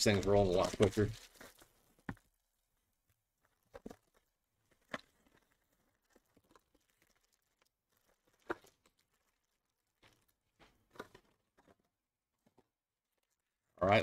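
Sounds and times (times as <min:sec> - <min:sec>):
trading cards handled: 0:00.0 - 0:02.3.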